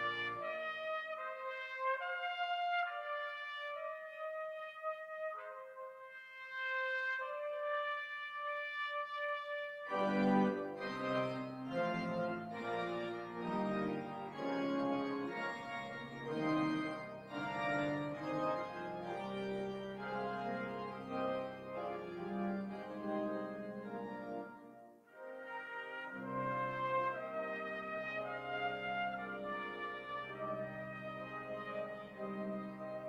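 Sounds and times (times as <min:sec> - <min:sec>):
church organ chords: 0:00.0 - 0:01.6, 0:09.9 - 0:33.0
solo trumpet: 0:00.0 - 0:33.0.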